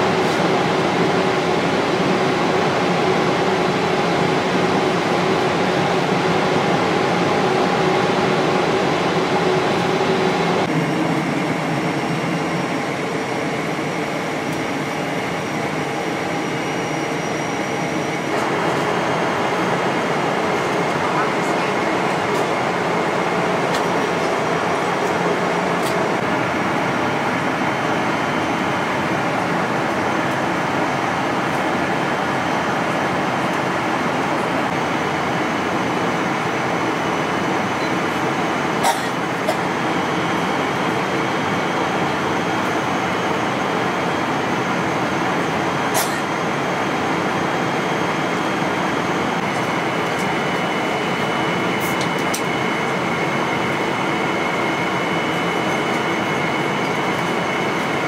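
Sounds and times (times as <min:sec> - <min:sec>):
airliner cabin roar: 0:00.0 - 0:58.0.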